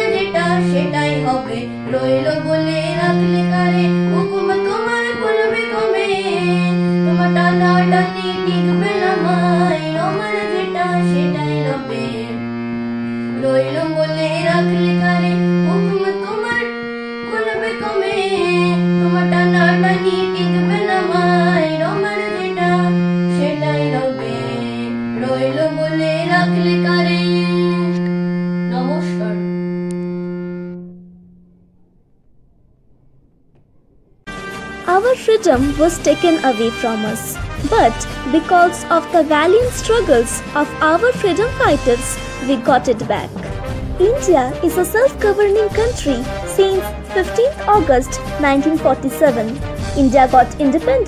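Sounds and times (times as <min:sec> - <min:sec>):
boy singing: 0:00.0 - 0:12.4, 0:13.5 - 0:28.1, 0:28.7 - 0:29.5, 0:34.9 - 0:43.2
harmonium sustained notes: 0:00.0 - 0:32.0, 0:34.3 - 0:51.0.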